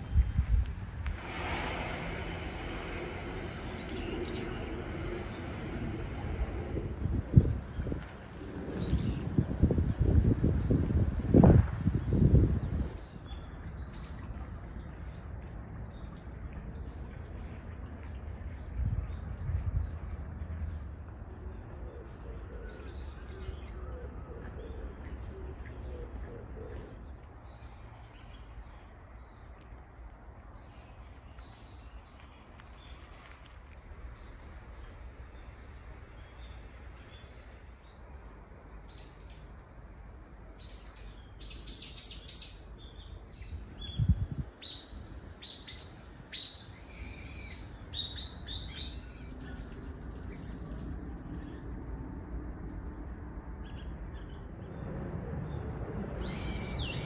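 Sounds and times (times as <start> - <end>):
low steady rumble: 0.0 - 32.9.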